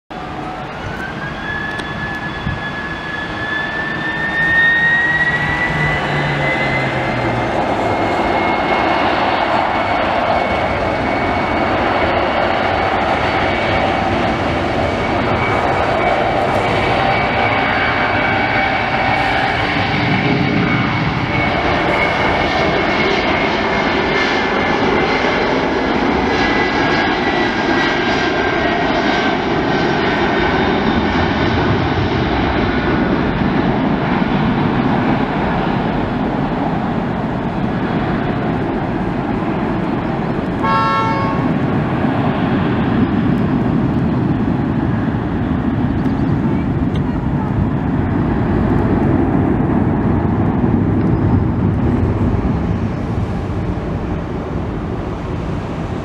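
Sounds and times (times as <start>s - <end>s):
jet engines at takeoff: 0.1s - 56.0s
short pitched tone: 40.6s - 41.6s.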